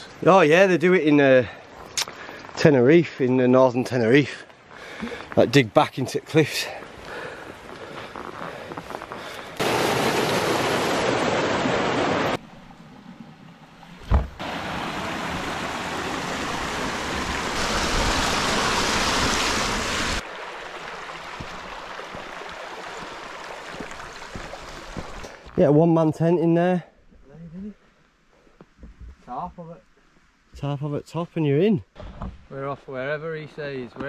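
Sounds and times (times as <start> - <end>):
stream splashing over rocks: 9.4 - 25.6
short low thump: 14.0 - 14.4.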